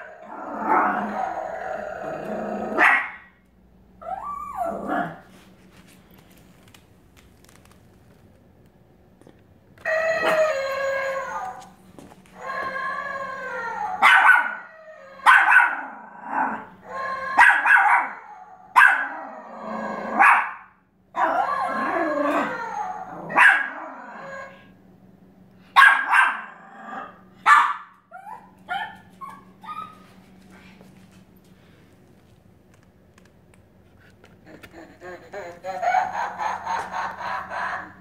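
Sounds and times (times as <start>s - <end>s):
dog howling: 0.0s - 2.9s, 9.8s - 11.8s, 12.4s - 20.3s, 21.2s - 24.7s
dog barking: 2.8s - 3.3s, 14.0s - 14.6s, 15.2s - 15.8s, 17.4s - 18.2s, 18.8s - 19.1s, 20.2s - 20.7s, 23.3s - 23.7s, 25.8s - 26.5s, 27.4s - 27.9s
dog yipping: 14.0s - 14.6s, 27.5s - 30.0s.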